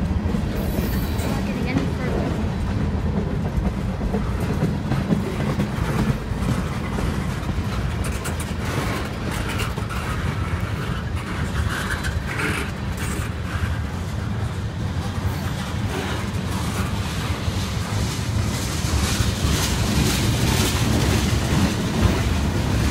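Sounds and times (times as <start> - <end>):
freight train rumbling past: 0.0 - 22.9
metallic clatter and screeching: 8.0 - 13.9.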